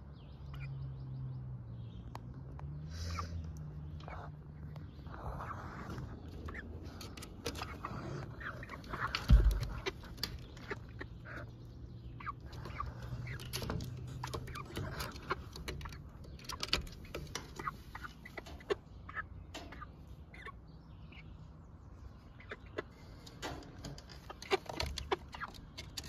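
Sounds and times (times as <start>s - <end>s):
hens clucking: 4.0s - 21.3s, 22.1s - 26.0s
light taps and scratches: 5.8s - 11.1s, 12.4s - 18.8s, 23.0s - 26.0s.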